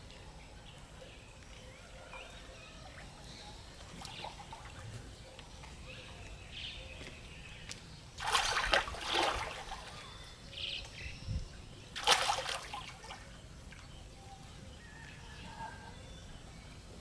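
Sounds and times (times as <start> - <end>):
bird chirp: 0.0 - 17.0
water splashing: 8.2 - 10.1, 12.0 - 13.9.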